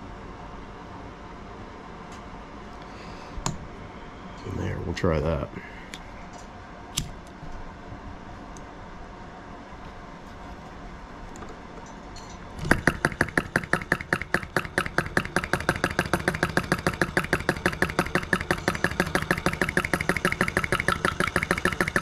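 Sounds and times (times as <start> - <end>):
small engine rapid clacking: 12.6 - 22.0.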